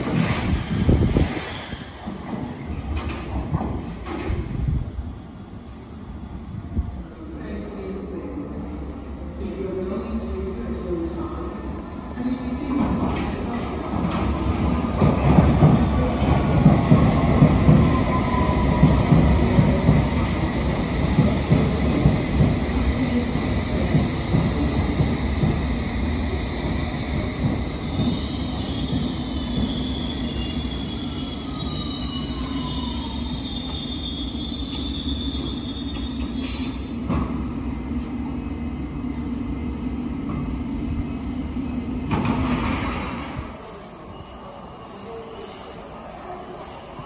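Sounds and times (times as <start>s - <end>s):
train rumbling to a stop: 0.0s - 7.2s, 11.5s - 47.0s
wheels and brakes squealing: 28.0s - 36.9s, 43.1s - 47.0s.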